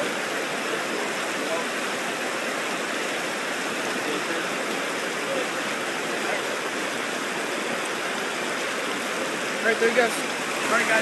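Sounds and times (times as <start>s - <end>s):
river water rushing over rocks: 0.0s - 11.0s.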